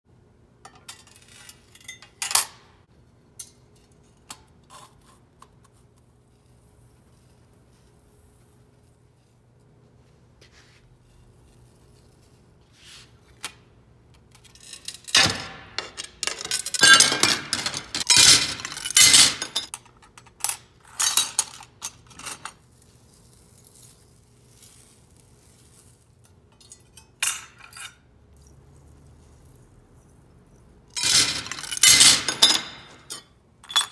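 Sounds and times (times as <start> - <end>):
glass clinking and breaking: 14.6 - 19.7, 30.9 - 33.9.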